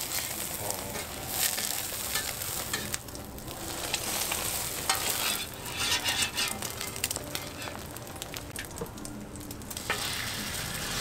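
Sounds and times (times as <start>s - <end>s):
food sizzling on griddle: 0.0s - 11.0s
metal spatula scraping plate: 4.9s - 7.8s.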